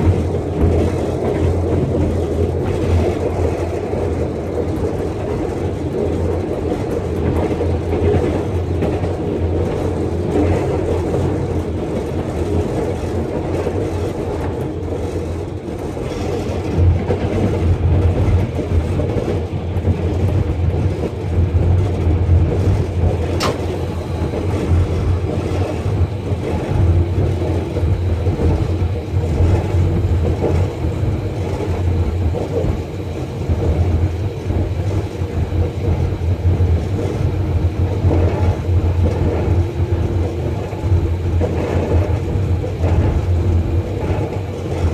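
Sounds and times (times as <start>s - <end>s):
train rumbling on track: 0.0s - 44.9s
diesel engine hum: 20.8s - 44.9s
sharp click: 23.4s - 23.7s.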